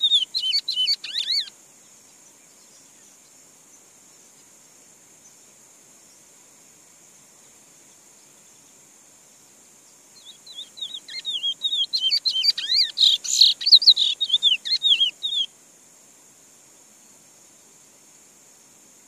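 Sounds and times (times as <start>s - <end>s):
bird singing sliding whistles: 0.0s - 1.5s, 10.2s - 15.5s
high insect drone: 0.0s - 19.0s.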